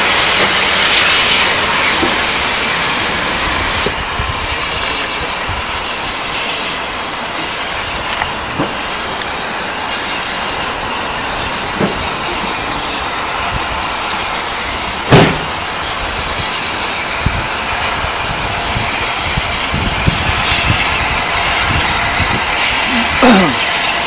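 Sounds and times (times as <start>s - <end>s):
steam locomotive exhaust rush: 0.0s - 24.0s
loud sharp knock: 15.1s - 15.5s.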